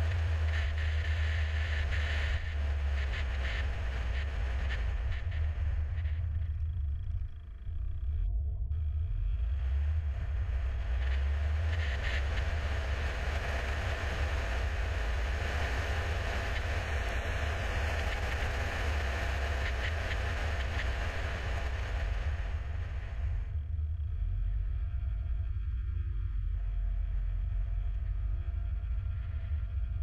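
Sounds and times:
wind noise: 0:09.3 - 0:30.0.

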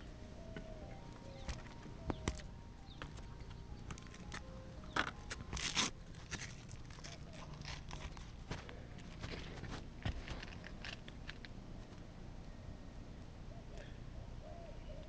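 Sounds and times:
footsteps on shingle roof: 0:08.1 - 0:11.0.

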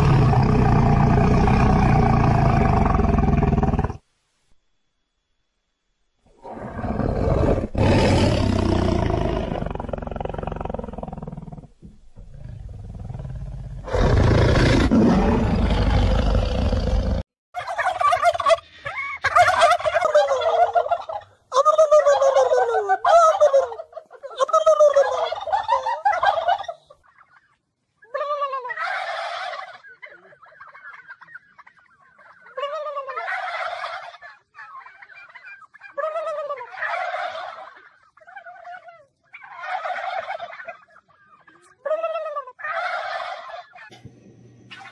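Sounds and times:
lion roaring: 0:00.0 - 0:04.0, 0:06.3 - 0:17.2
turkeys gobbling: 0:17.6 - 0:44.1, 0:44.7 - 0:44.9.

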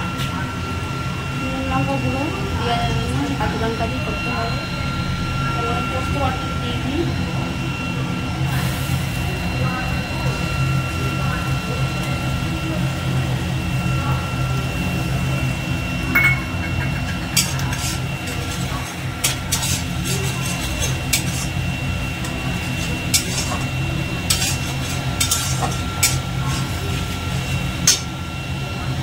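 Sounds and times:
steady low hum: 0:00.0 - 0:29.0
spatula scraping a metal pan: 0:16.5 - 0:28.1.

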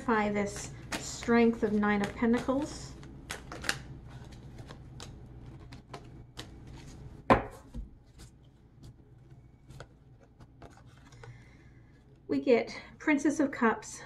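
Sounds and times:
cards snapping and tapping: 0:00.6 - 0:07.6
card knock on table: 0:07.3 - 0:07.9.

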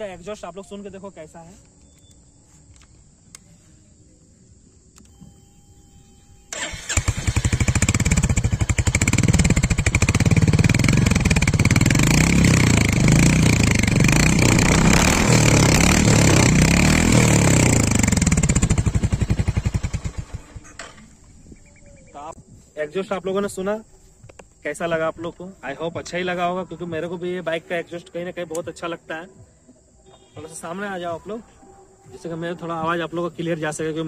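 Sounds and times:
motorcycle engine running: 0:06.5 - 0:21.9.

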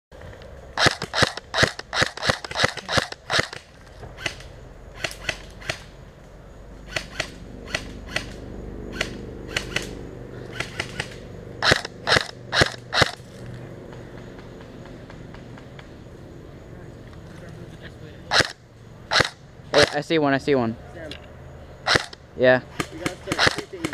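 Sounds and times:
airsoft rifle firing: 0:00.8 - 0:05.9, 0:06.9 - 0:13.2, 0:18.3 - 0:19.9, 0:21.9 - 0:23.9
faint airsoft gun shots: 0:22.7 - 0:23.9.

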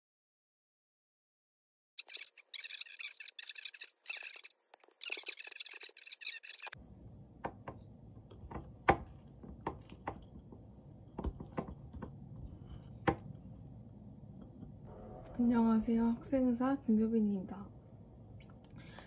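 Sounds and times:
stylus scratching on glass screen: 0:02.0 - 0:06.8
low room noise: 0:02.1 - 0:19.0.

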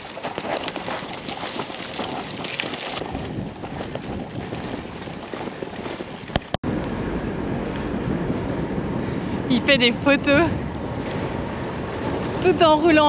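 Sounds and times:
bicycle rolling noise: 0:00.0 - 0:09.4
wind buffeting microphone: 0:00.0 - 0:13.0.

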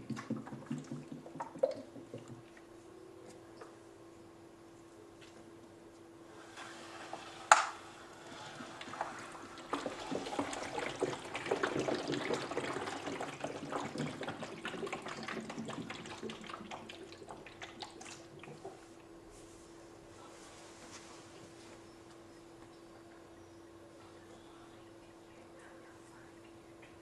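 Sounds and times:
water trickling and sloshing: 0:08.1 - 0:19.0.

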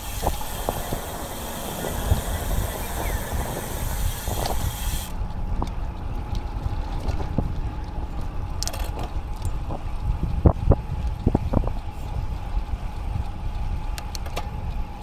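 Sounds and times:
bike tyre and road rumble: 0:00.0 - 0:15.0
wind buffeting microphone: 0:00.0 - 0:15.0.

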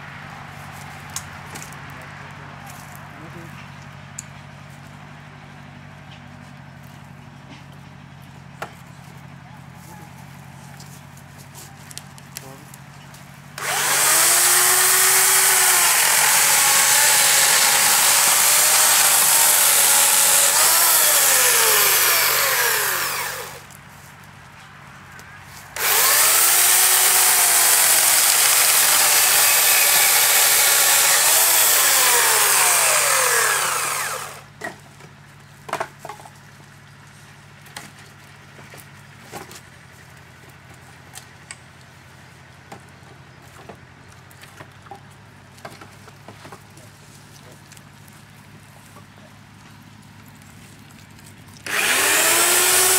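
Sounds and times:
electric chainsaw cutting logs: 0:13.6 - 0:23.8, 0:25.8 - 0:34.8, 0:51.6 - 0:52.9.

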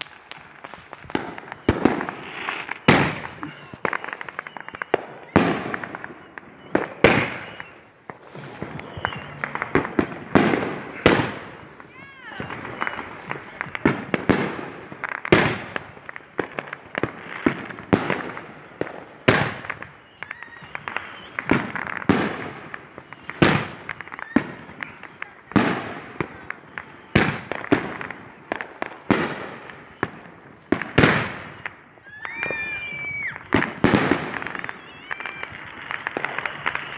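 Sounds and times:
firework hiss: 0:00.0 - 0:06.0, 0:06.8 - 0:30.2
firework shells bursting: 0:00.0 - 0:36.9.

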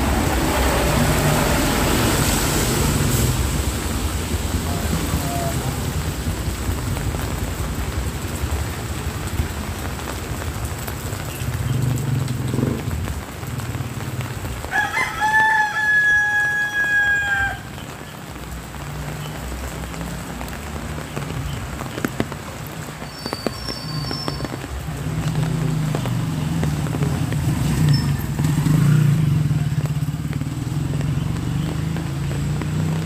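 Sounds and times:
light rain hiss: 0:00.1 - 0:33.0
rooster crowing: 0:14.7 - 0:17.7.

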